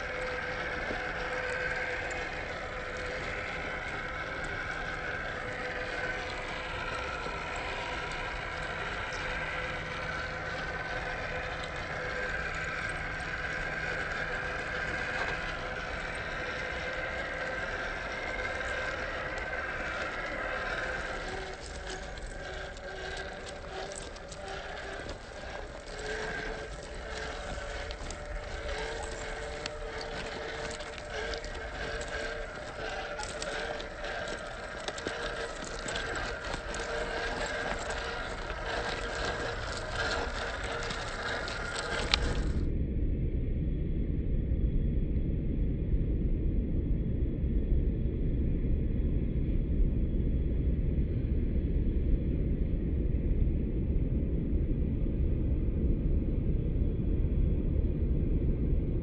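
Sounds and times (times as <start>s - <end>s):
scattered clicks: 0.0s - 42.6s
electric motor and gears whining: 0.0s - 42.7s.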